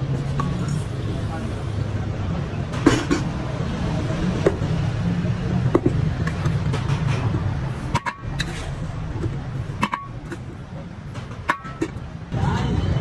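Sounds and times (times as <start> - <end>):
low mechanical rumble: 0.0 - 13.0
steel bowls clinking on pot: 11.3 - 12.0.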